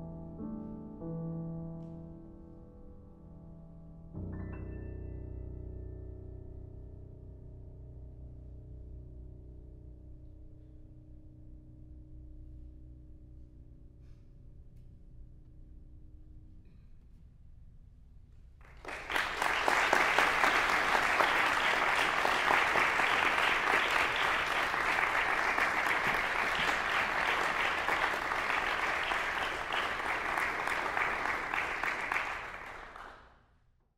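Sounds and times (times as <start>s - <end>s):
audience applause: 18.7s - 33.2s.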